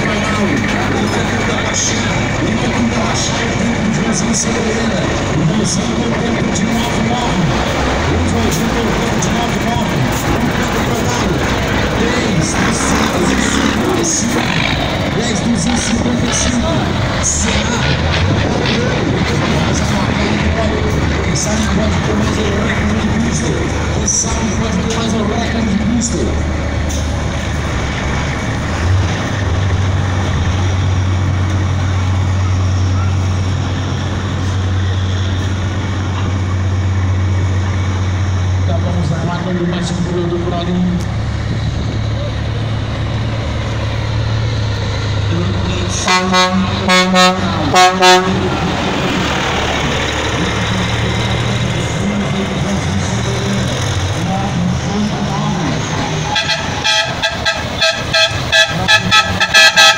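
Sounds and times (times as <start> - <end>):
background voices: 0.0 - 59.5
diesel truck engine idling: 0.0 - 59.9
truck horn blasts: 45.9 - 48.5, 56.2 - 59.9.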